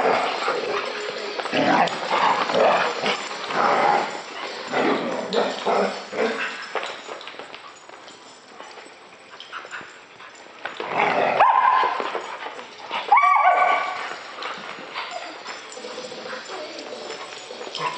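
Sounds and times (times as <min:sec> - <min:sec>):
dog whining yelps: 0:13.1 - 0:14.0.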